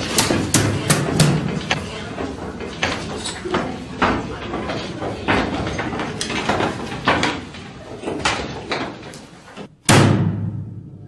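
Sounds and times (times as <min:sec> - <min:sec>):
wooden desks knocking: 0:00.0 - 0:09.1
loud bang: 0:09.8 - 0:11.0.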